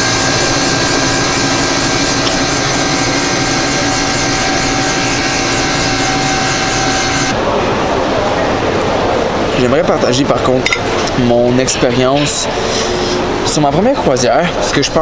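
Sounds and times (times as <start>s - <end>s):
whining tones: 0.0s - 7.5s
ice cream machine humming: 0.0s - 15.0s.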